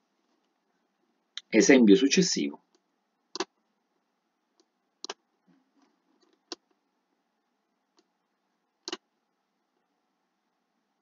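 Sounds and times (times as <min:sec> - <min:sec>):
computer mouse clicking: 0:02.7 - 0:03.6, 0:04.5 - 0:05.2, 0:05.8 - 0:06.8, 0:07.9 - 0:08.1, 0:08.8 - 0:09.1.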